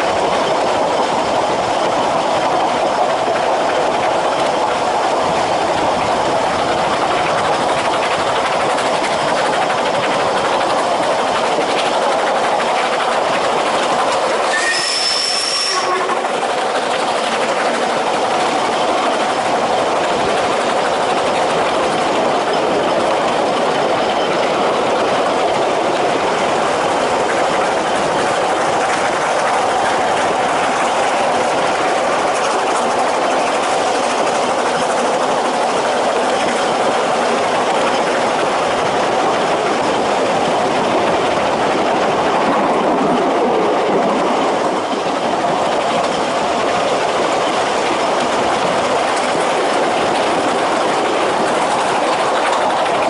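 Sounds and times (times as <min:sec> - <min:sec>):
train wheels clattering on rails: 0:00.0 - 0:53.0
brief high squeak: 0:14.5 - 0:16.1.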